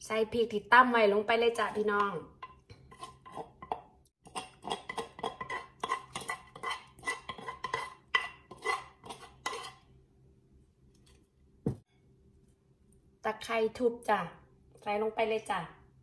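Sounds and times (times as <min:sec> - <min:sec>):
metal spoon scraping mortar: 0:01.6 - 0:09.9.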